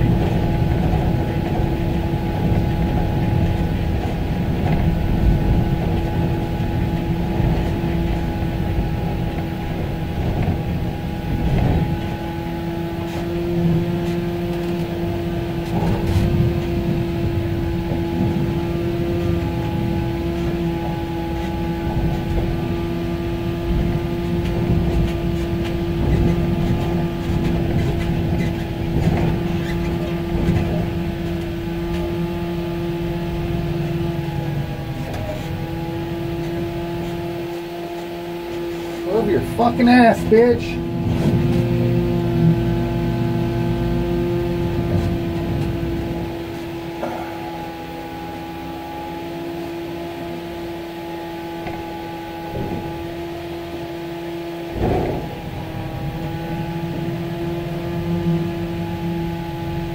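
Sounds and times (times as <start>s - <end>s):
truck rumbling: 0.0s - 59.9s
rattling knocks: 51.4s - 57.9s.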